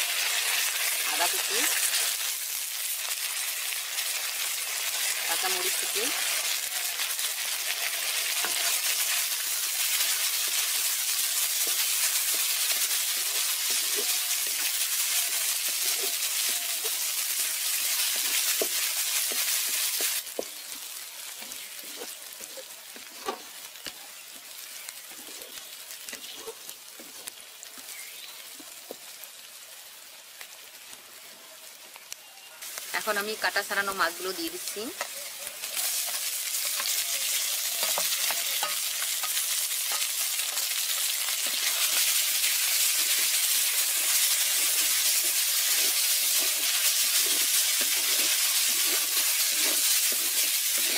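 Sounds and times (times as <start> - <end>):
vegetables sizzling in hot oil: 0.0 - 50.9
wooden spatula scraping: 10.0 - 23.6, 35.7 - 50.9.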